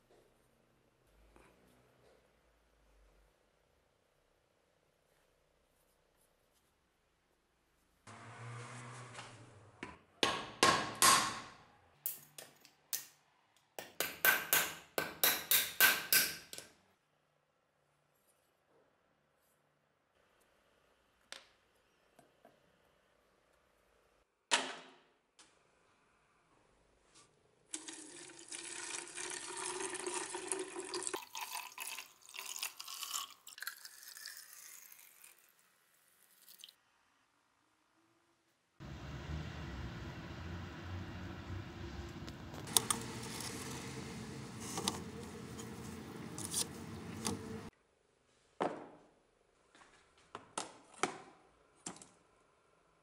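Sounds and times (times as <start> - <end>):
hammer knocking on metal tool: 13.8 - 16.5
liquid pouring into plastic container: 27.7 - 35.5.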